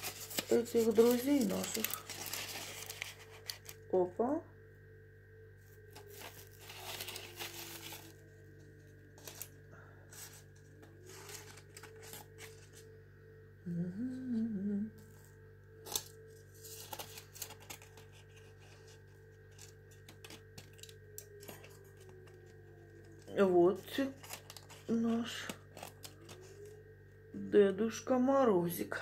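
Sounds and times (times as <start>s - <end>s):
foil rustling and crinkling: 0.0s - 4.0s, 5.6s - 12.9s, 15.8s - 26.8s
faint steady hum: 0.0s - 29.0s
person humming: 13.6s - 15.4s.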